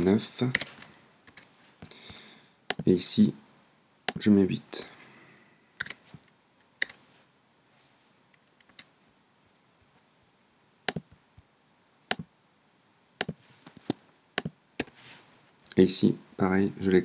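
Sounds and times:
mouse and keyboard clicks: 0.5s - 1.5s, 5.8s - 7.0s, 8.3s - 8.9s, 13.2s - 15.0s.

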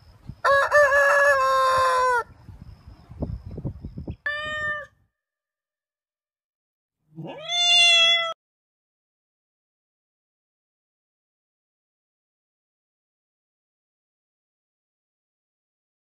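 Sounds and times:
rooster crowing: 0.4s - 2.3s
cat meowing: 4.3s - 5.0s, 7.2s - 8.4s.

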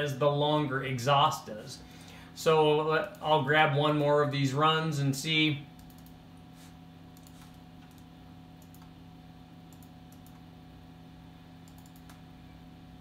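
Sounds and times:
low electrical hum: 0.0s - 13.0s
mouse and keyboard clicks: 11.7s - 12.2s.

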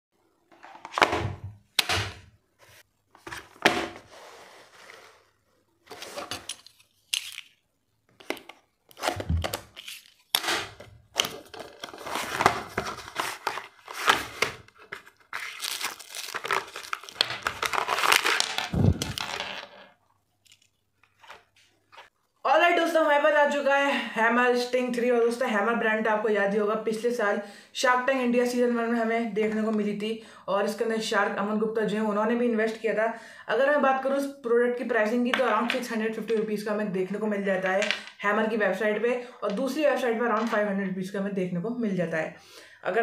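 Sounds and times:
packaging rustling: 5.9s - 7.6s, 8.2s - 19.7s.

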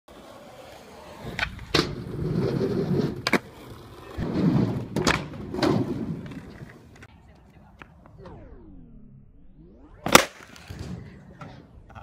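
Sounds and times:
skateboard wheels rolling: 0.1s - 8.2s.

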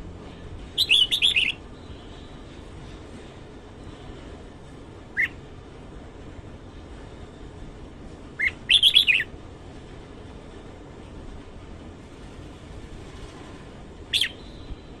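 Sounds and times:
bird singing high notes: 0.8s - 1.6s.

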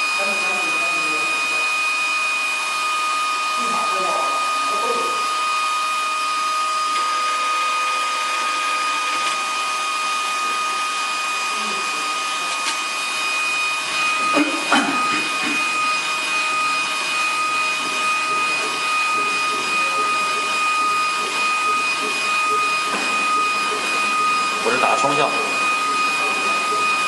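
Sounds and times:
printer running with whine: 0.0s - 27.0s.

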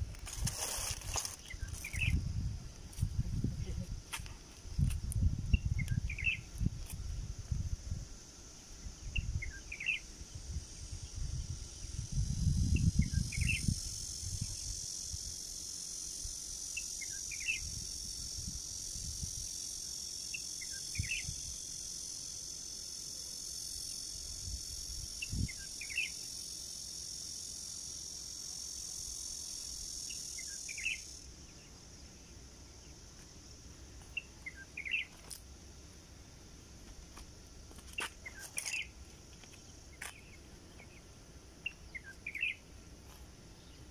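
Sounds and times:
high-pitched insect buzz: 0.0s - 43.9s
bird chirps: 1.4s - 2.2s, 5.5s - 6.5s, 9.2s - 10.0s, 34.1s - 35.2s, 37.9s - 38.9s, 39.9s - 42.6s.

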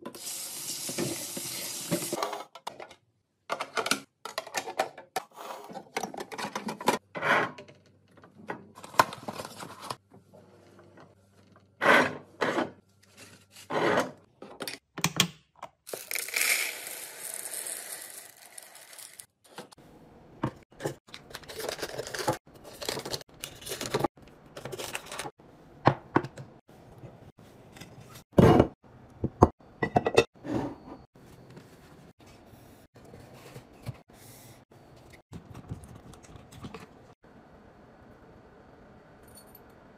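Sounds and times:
coffee beans pouring into glass: 15.9s - 19.2s.

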